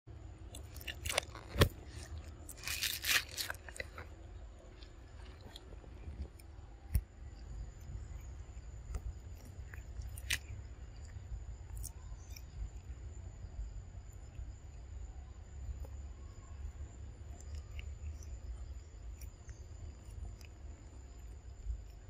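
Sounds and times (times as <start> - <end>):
steady low rumble: 0.1 - 22.0
monkey chewing crisp cabbage: 0.5 - 12.9, 17.3 - 22.0.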